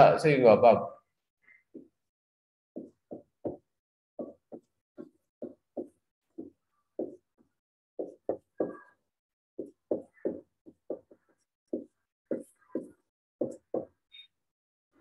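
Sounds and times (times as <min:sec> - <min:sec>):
marker tapping on whiteboard: 0:01.7 - 0:02.0, 0:02.8 - 0:09.0, 0:09.6 - 0:14.0.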